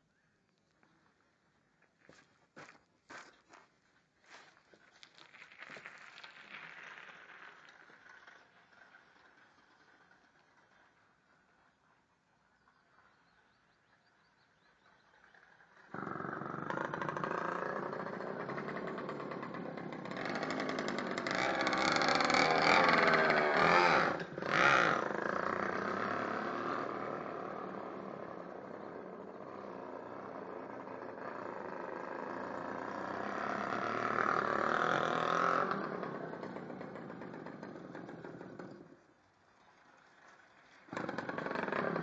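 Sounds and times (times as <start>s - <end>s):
small two-stroke engine revving: 15.2s - 42.0s.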